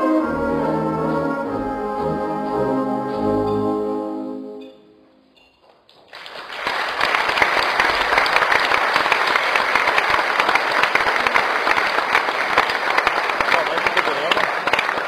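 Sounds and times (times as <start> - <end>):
audience applause: 5.9 - 15.0.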